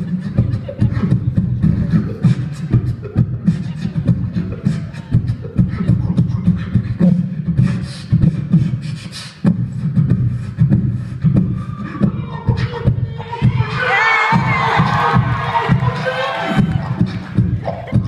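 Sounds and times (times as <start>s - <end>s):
beatboxing into a microphone: 0.0s - 18.0s.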